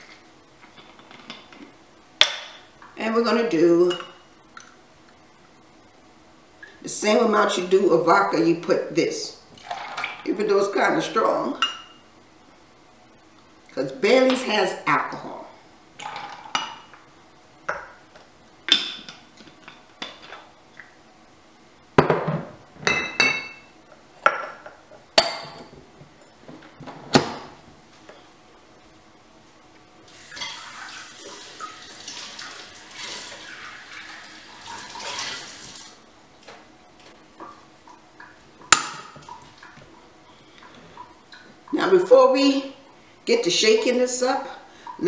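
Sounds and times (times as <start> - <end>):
kitchen tap running: 30.1 - 36.0.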